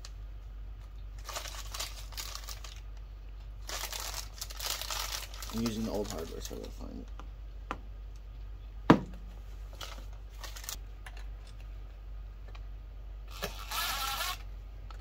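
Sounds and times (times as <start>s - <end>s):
cordless drill driving screw: 13.3s - 14.4s.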